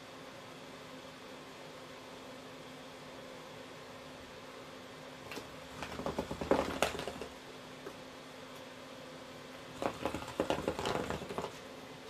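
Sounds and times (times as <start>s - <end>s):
ball rattling in wooden box: 5.3s - 7.4s, 9.8s - 11.6s
cat pawing at wooden toy box: 9.8s - 11.6s.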